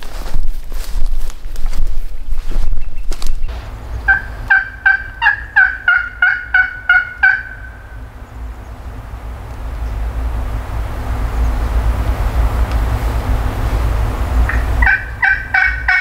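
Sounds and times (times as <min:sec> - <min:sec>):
turkey yelping: 0:04.1 - 0:07.9, 0:14.5 - 0:16.0.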